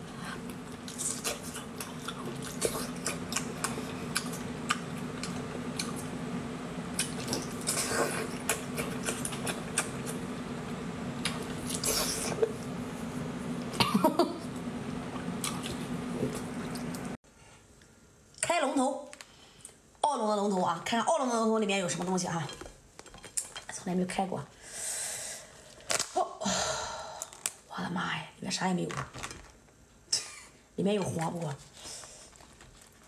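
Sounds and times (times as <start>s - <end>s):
steady low hum: 0.0s - 33.0s
wet chewing and slurping: 0.5s - 6.0s, 7.0s - 10.2s, 11.2s - 12.6s, 31.7s - 33.0s.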